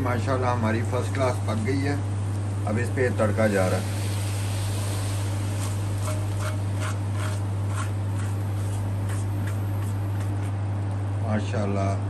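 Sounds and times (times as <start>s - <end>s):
hot oil sizzling: 0.0s - 10.8s
low hum: 3.2s - 10.3s
spatula scraping metal pan: 5.2s - 10.5s.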